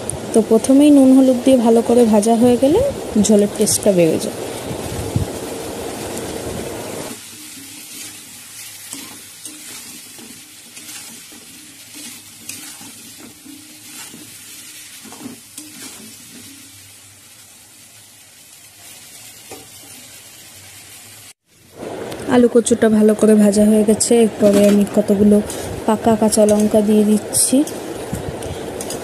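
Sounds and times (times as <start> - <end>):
food sizzling in oil: 0.0 - 29.0
metal spatula scraping pan: 7.2 - 16.8, 24.4 - 26.9.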